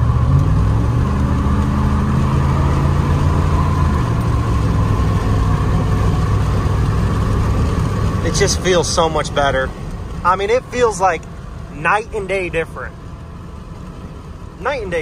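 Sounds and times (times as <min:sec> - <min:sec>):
engine accelerating: 0:00.0 - 0:15.0.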